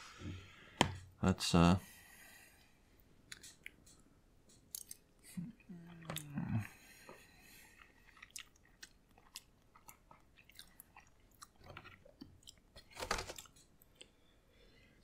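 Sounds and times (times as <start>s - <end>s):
chewing soft pasta: 3.3s - 12.8s, 13.4s - 14.6s.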